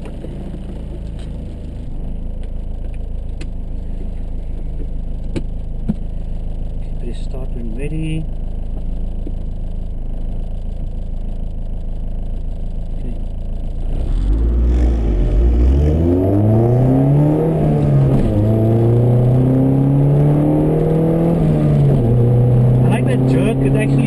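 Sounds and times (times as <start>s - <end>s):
car engine revving: 12.9s - 24.0s.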